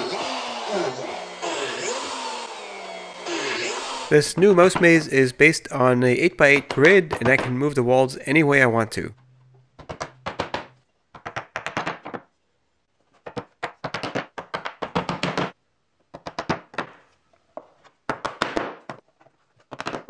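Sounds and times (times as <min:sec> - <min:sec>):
wooden blocks knocking on board: 0:06.6 - 0:07.6, 0:09.8 - 0:12.3.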